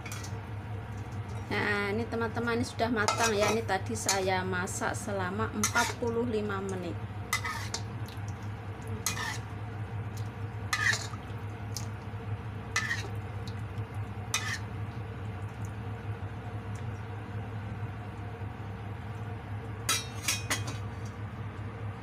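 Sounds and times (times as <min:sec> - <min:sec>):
liquid sizzling softly: 0:00.0 - 0:21.9
steady low hum: 0:00.0 - 0:22.0
metal spatula scraping wok: 0:03.1 - 0:04.2, 0:05.6 - 0:06.0, 0:07.3 - 0:07.8, 0:09.0 - 0:09.5, 0:10.7 - 0:11.2, 0:12.8 - 0:13.2, 0:14.3 - 0:14.7.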